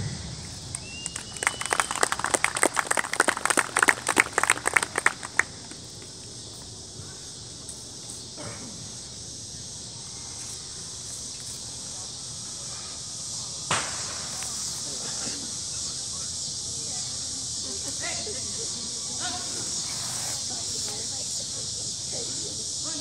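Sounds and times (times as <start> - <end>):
high insect chorus: 0.0 - 23.0
hand clapping: 0.6 - 6.2.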